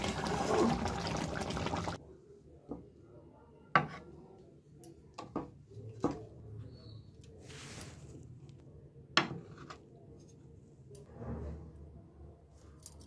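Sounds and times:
gravy bubbling and sizzling: 0.0 - 2.0.

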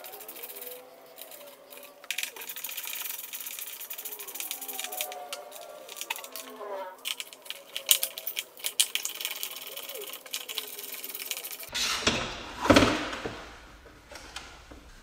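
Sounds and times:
plastic cover clicking and rattling: 0.0 - 11.7.

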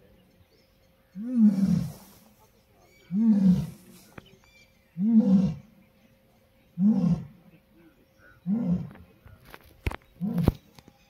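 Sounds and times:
lion roaring: 1.2 - 2.1, 3.1 - 3.9, 5.0 - 5.7, 6.8 - 7.4, 8.4 - 9.1.

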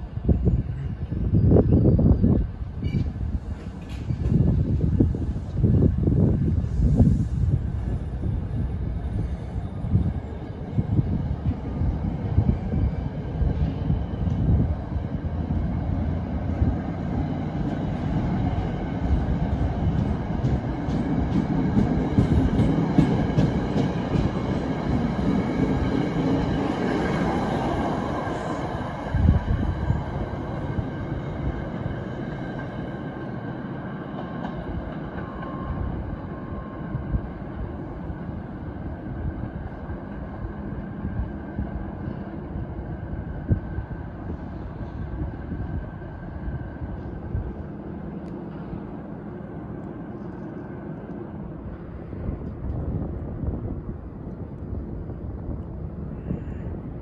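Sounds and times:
train wheels rumbling on rail: 0.0 - 57.0
wind buffeting microphone: 0.0 - 57.0.

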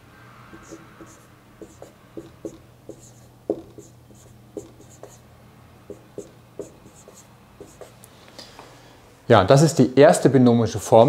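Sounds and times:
faint low hum: 0.0 - 10.0
marker writing on whiteboard: 0.5 - 5.2, 5.9 - 8.0.

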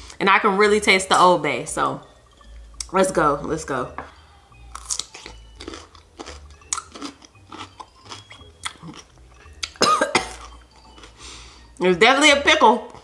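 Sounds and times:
crunchy pickle bite and chewing: 4.7 - 11.2.

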